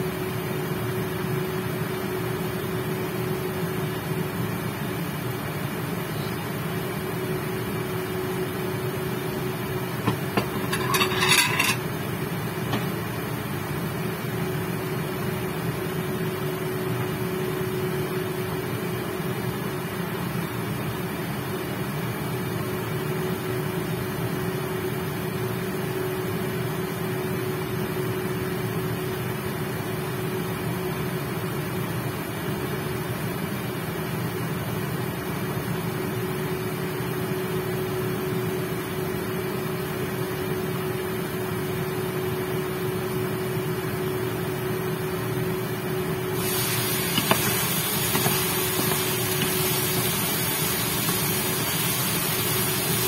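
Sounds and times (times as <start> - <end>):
cooling fan whirring: 0.0 - 53.0
induction cooker electrical hum: 0.0 - 53.0
pan clicks and hiss: 46.4 - 53.0.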